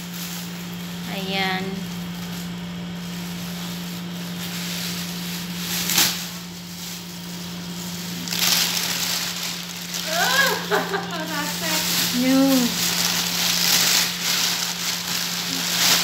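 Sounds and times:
plastic bags rustling: 0.0 - 16.0.

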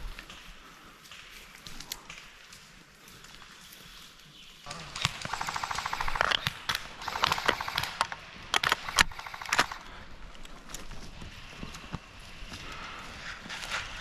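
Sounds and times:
airsoft gun automatic burst: 5.0 - 9.9.

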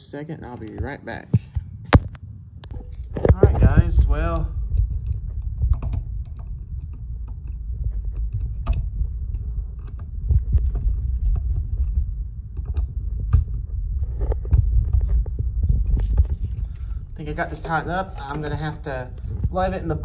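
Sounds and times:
hand rubbing on microphone: 2.7 - 5.3, 7.8 - 20.0.

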